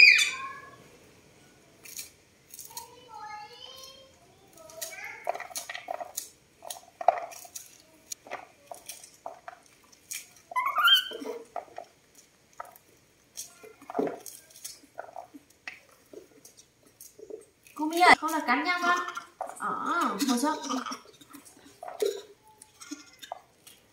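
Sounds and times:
baby monkeys squealing: 0.0 - 0.8, 10.5 - 11.4.

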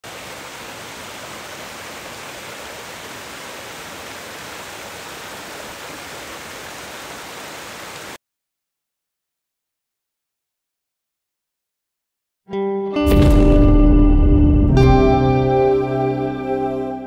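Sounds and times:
water rushing over boulders: 0.0 - 8.2.

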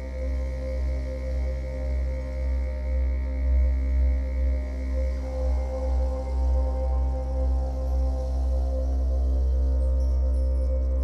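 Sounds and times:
ambient drone music: 0.0 - 11.0.

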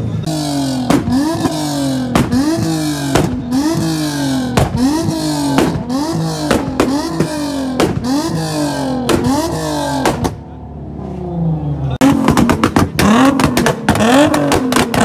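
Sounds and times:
sharp exhaust bangs: 0.0 - 10.5, 12.0 - 15.0
car engine revving on limiter: 0.2 - 10.4, 11.0 - 15.0.

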